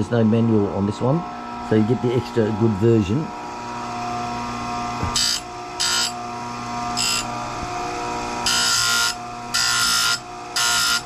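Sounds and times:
grinder motor hum: 0:00.0 - 0:11.0
grinding wheel on metal: 0:05.0 - 0:11.0.

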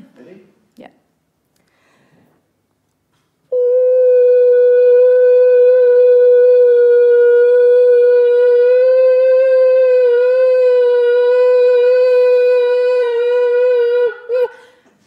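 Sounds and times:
woman singing sustained note: 0:03.5 - 0:14.6.

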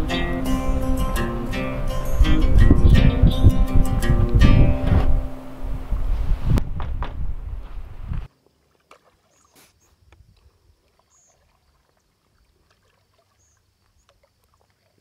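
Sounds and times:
guitar music: 0:00.0 - 0:06.1
light water drips and clicks: 0:08.7 - 0:15.0.

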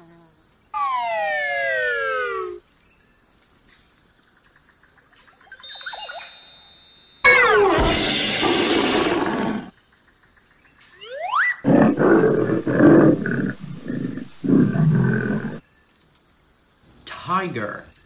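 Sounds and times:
rising whistle sound effect: 0:07.3 - 0:09.7, 0:11.0 - 0:11.6
tiger roaring and growling: 0:07.3 - 0:09.7, 0:11.6 - 0:15.6.

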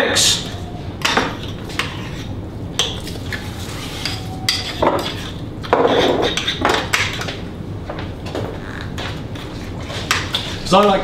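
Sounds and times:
metal utensil scraping ceramic dish: 0:01.0 - 0:03.2, 0:03.8 - 0:07.1.

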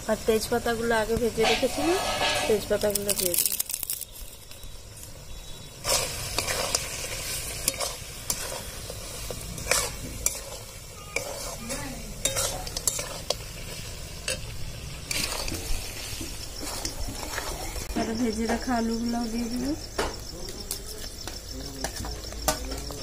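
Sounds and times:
meat sizzling in oil: 0:00.0 - 0:18.8
metal spatula scraping wok: 0:01.4 - 0:03.6, 0:05.6 - 0:18.2.

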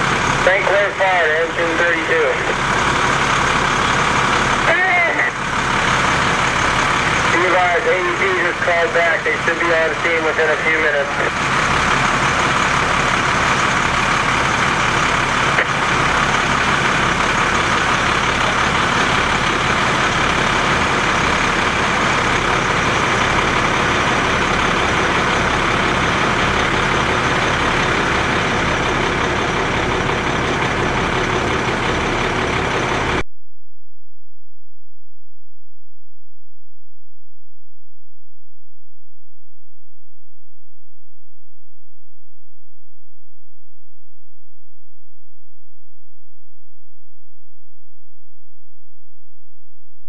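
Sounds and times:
diesel engine droning: 0:00.0 - 0:33.2.

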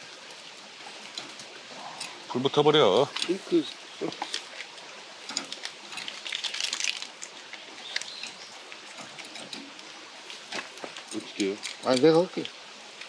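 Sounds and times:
meat sizzling on a grill: 0:00.0 - 0:13.0
birds calling: 0:00.8 - 0:12.9.

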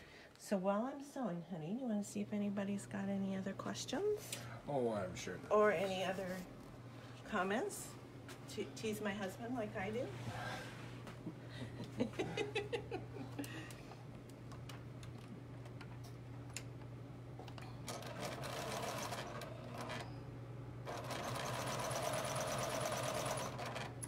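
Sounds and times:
sewing machine stitching: 0:17.8 - 0:20.1, 0:20.8 - 0:24.0.

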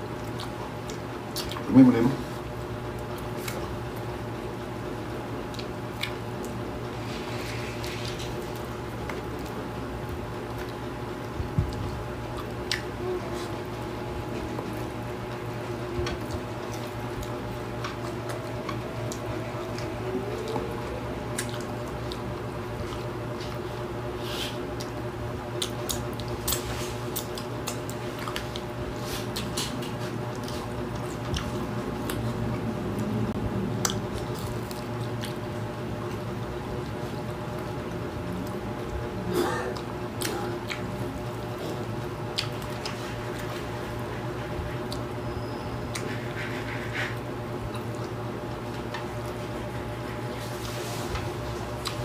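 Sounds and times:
steady low hum: 0:00.0 - 0:52.0
wet chewing and lip smacks: 0:00.1 - 0:01.7, 0:02.9 - 0:04.0, 0:05.4 - 0:06.6, 0:10.5 - 0:13.0, 0:16.2 - 0:23.6, 0:24.7 - 0:33.1, 0:33.8 - 0:36.2, 0:39.8 - 0:45.2, 0:45.9 - 0:50.7, 0:51.5 - 0:52.0.

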